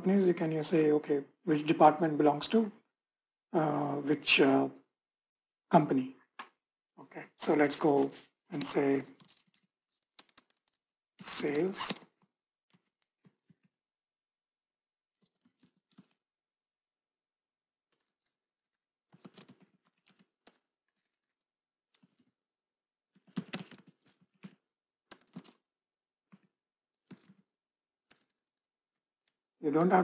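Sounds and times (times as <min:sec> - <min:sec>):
keyboard typing: 0:07.4 - 0:13.6, 0:19.1 - 0:21.3, 0:23.3 - 0:25.6, 0:28.1 - 0:28.6.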